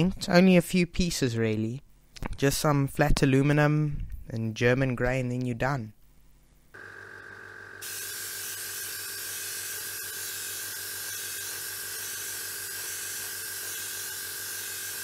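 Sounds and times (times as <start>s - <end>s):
spray paint hissing: 7.8s - 15.0s.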